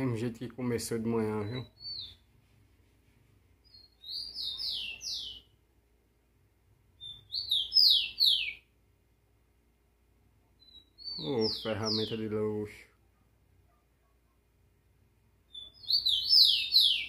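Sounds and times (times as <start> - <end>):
sparrow singing whistled notes: 1.3 - 2.2, 3.6 - 5.5, 7.0 - 8.7, 10.6 - 12.3, 15.5 - 17.0.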